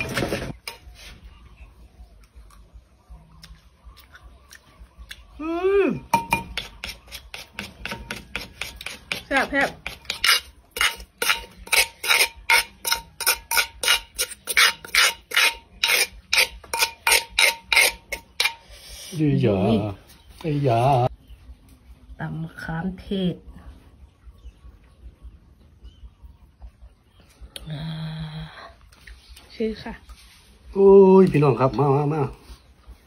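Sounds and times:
pestle pounding in clay mortar: 6.0 - 18.6
metal spoon scraping: 6.2 - 19.2.

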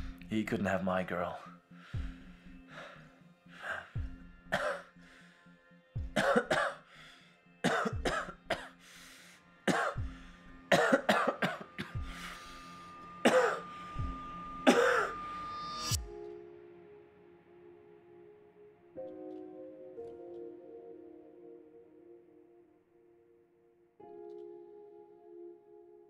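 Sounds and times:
quiet music score: 0.0 - 26.0
man coughing and choking: 4.5 - 4.9, 6.2 - 6.8, 7.6 - 8.7, 9.7 - 10.0, 10.7 - 12.0, 13.2 - 13.6, 14.7 - 15.1.

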